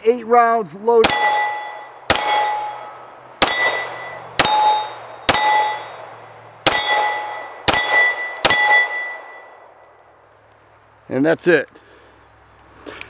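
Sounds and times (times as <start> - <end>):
pistol shots: 1.0 - 9.6
steel plate target ringing: 1.0 - 9.6.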